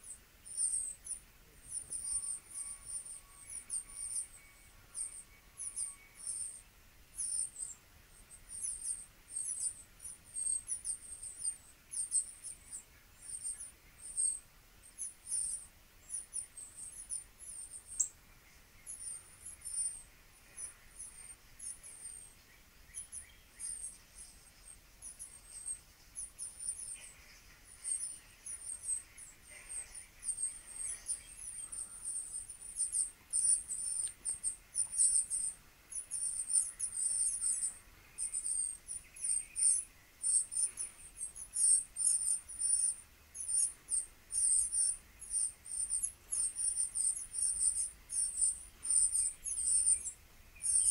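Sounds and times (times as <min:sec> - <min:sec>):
high-pitched chirps and twitters: 0:00.0 - 0:06.6, 0:27.7 - 0:50.9.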